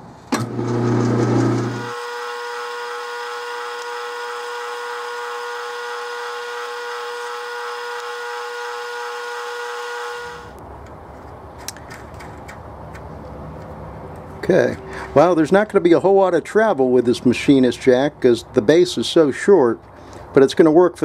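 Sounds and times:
low lathe hum: 0.3 - 10.6
metal lathe whine: 0.4 - 10.6.

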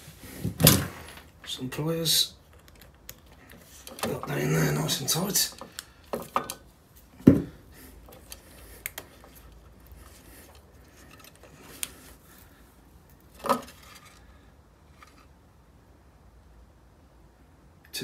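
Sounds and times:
plastic connectors clicking: 2.5 - 4.4, 5.4 - 6.6, 8.0 - 12.0.

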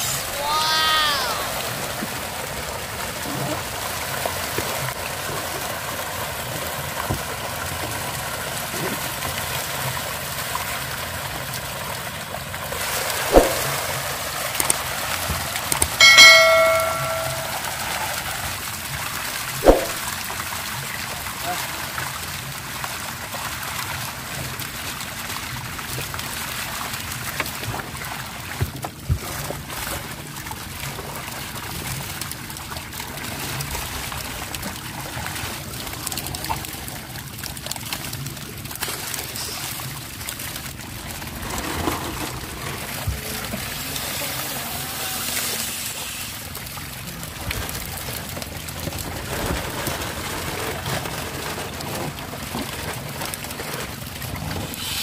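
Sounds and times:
sharp knocks: 13.3 - 13.8, 19.6 - 20.0.

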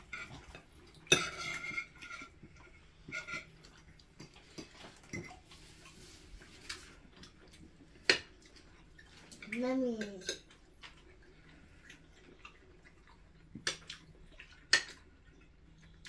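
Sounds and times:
cutlery clinking on plates: 0.0 - 2.4.

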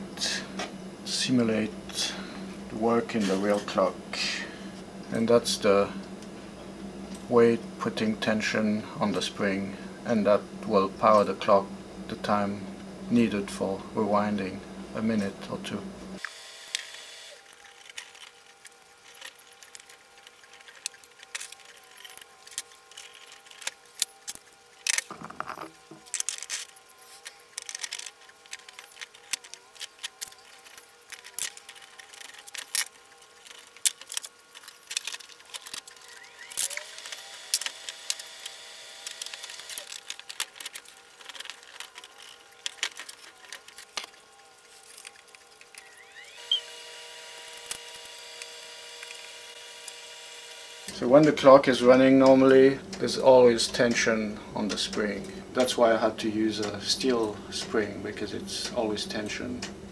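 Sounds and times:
plastic gears clicking and clattering: 16.7 - 50.0.

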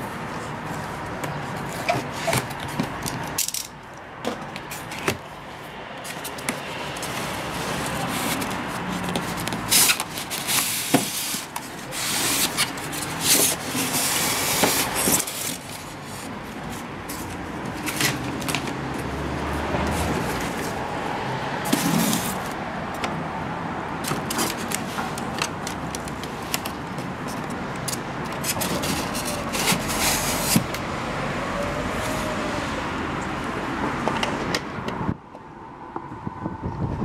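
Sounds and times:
foam packing tray scraping: 7.3 - 15.7.

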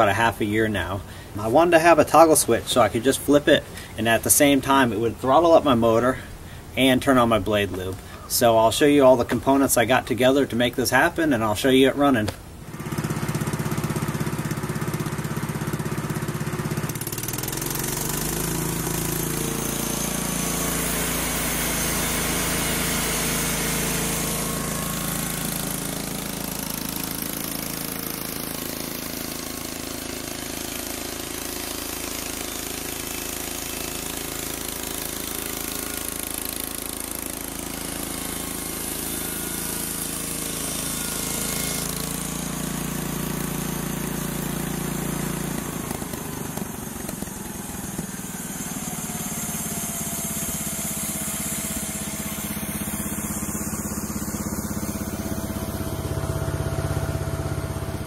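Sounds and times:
small gasoline engine running: 12.2 - 58.0.

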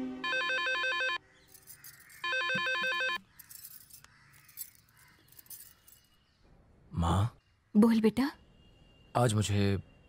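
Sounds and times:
electronic telephone ringing: 0.2 - 1.2, 2.2 - 3.2.

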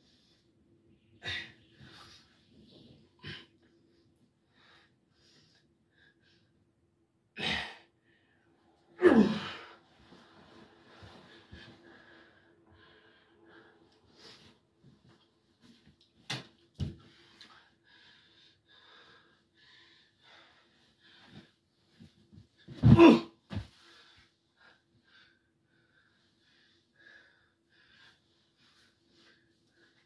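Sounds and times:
person breathing heavily: 7.4 - 14.6
bodies thudding on mattress: 22.7 - 23.7.

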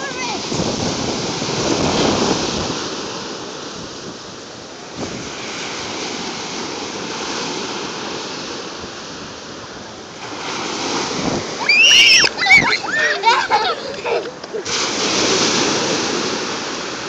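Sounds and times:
ocean waves breaking on beach: 0.0 - 17.0.

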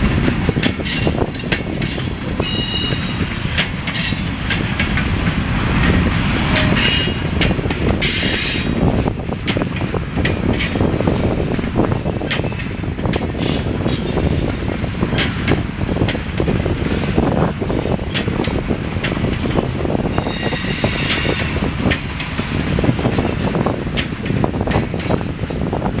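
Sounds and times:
steel wheels rumbling on rail: 0.0 - 26.0
wheels clicking over rail joints: 0.0 - 26.0
metallic wheel squeal: 20.2 - 21.4.

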